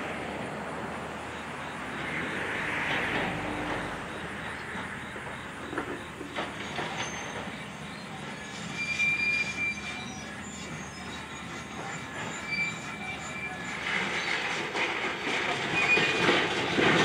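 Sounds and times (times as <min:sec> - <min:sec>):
excavator clatter and rumble: 0:00.0 - 0:17.0
high-pitched metal squeals: 0:06.6 - 0:14.6, 0:15.6 - 0:16.7.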